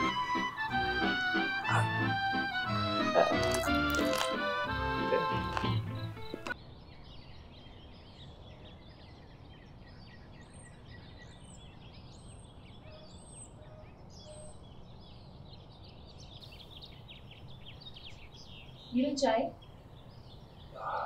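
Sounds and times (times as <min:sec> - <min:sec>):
small birds chirping: 0:00.0 - 0:21.0
high thin bird calls: 0:01.6 - 0:02.1, 0:20.6 - 0:21.0.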